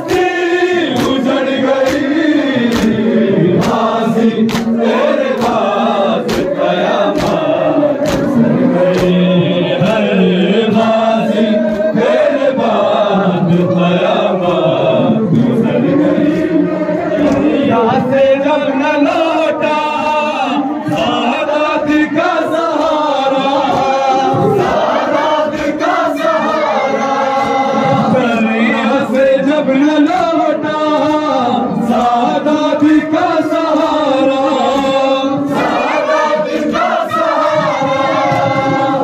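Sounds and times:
chest-beating slaps: 0.0 - 10.1
men chanting a lament: 0.0 - 39.0.

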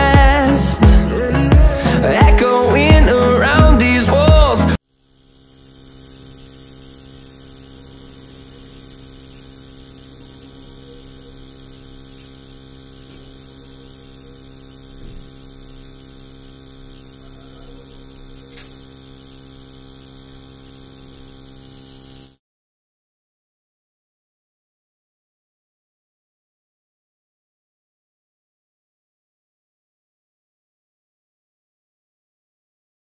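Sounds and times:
blower fan humming: 0.0 - 22.4.

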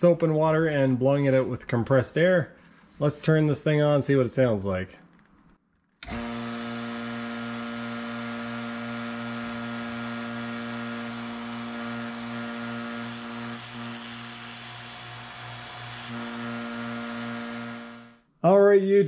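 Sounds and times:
vacuum pump motor hum: 6.0 - 13.0.

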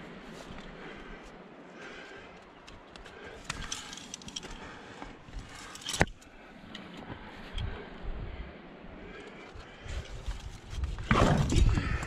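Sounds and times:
climbing hardware clinking: 2.6 - 4.7, 5.4 - 7.7.

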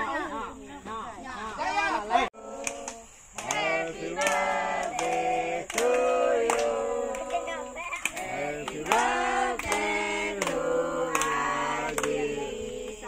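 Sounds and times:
women and children singing: 1.4 - 13.0
hand claps: 2.6 - 7.4, 8.0 - 12.2.

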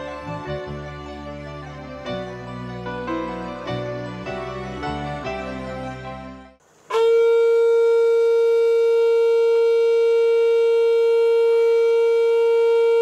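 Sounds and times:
soft background music: 0.0 - 6.6
conch shell blown: 6.9 - 13.0.

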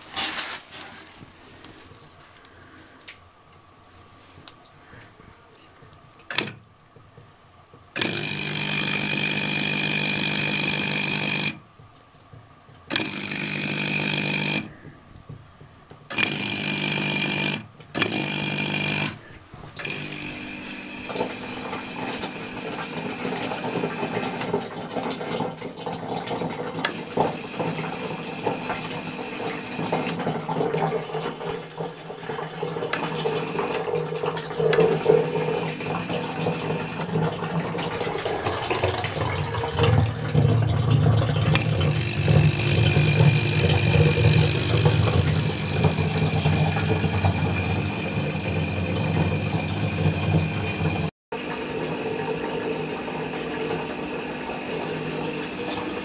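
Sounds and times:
submersible pump humming: 0.0 - 56.0
moving water: 19.2 - 56.0.

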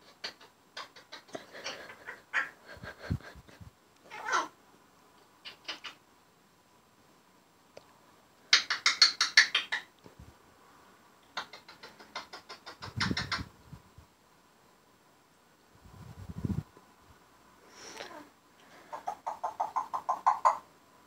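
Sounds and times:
parrot clicking chatter: 0.0 - 2.5, 5.4 - 6.0, 8.5 - 9.9, 11.3 - 13.5, 18.9 - 20.6
throaty parrot sound: 0.0 - 4.6, 5.4 - 6.0, 11.3 - 13.5, 18.8 - 20.6.

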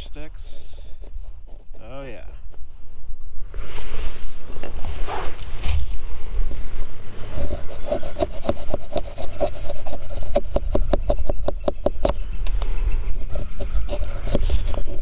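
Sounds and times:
low wind rumble on microphone: 0.0 - 15.0
knife scraping wooden stick: 7.2 - 15.0.

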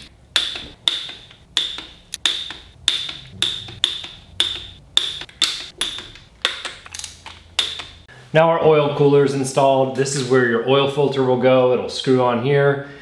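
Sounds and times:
hand ratchet clicking: 0.0 - 8.1.

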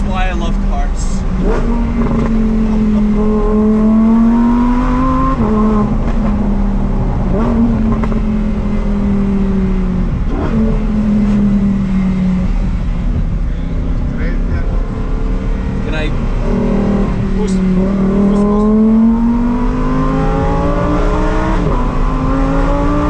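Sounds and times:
car engine revving: 0.0 - 23.0
road and wind noise: 0.0 - 23.0.

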